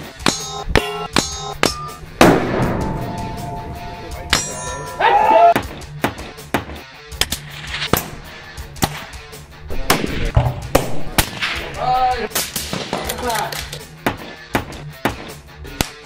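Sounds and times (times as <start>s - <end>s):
background music with beat: 0.0s - 12.9s, 13.8s - 16.0s
loud ringing metallic clang: 0.2s - 5.4s.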